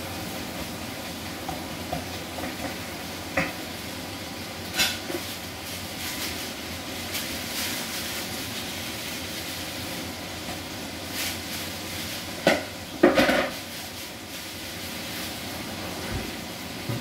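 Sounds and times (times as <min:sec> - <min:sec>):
food sizzling in a pan: 0:00.0 - 0:17.0
kitchenware clattering: 0:12.4 - 0:13.6.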